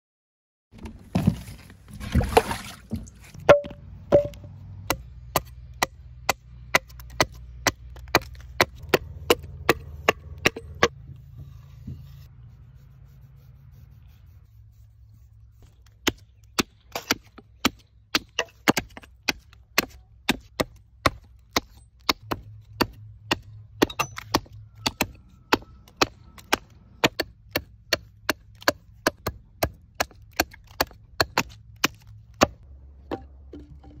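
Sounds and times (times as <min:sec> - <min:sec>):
axe chopping wood: 0:03.4 - 0:11.0, 0:15.9 - 0:34.0.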